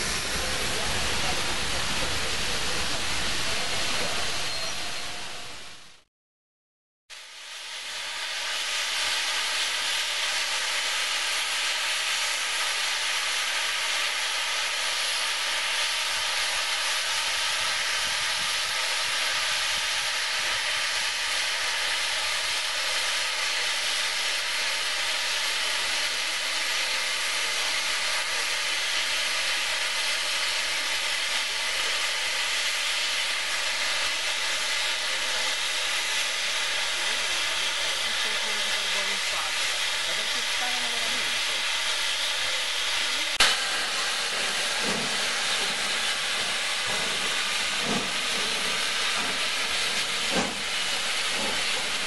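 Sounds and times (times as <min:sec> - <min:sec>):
steam locomotive hissing steam: 0:00.0 - 0:06.0, 0:07.2 - 0:52.0.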